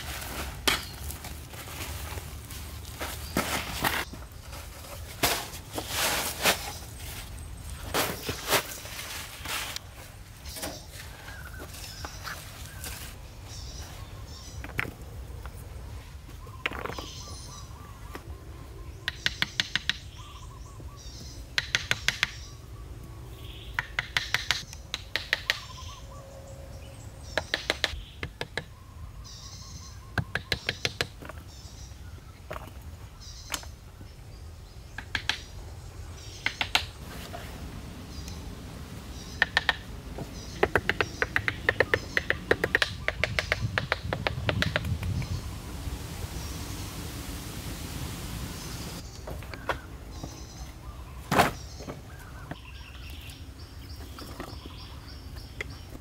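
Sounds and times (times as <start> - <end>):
faint birds chirping: 6.5 - 56.0
hammer knocking wooden logs: 19.0 - 20.0, 21.6 - 22.4, 23.8 - 25.7, 27.4 - 28.7, 39.4 - 45.0.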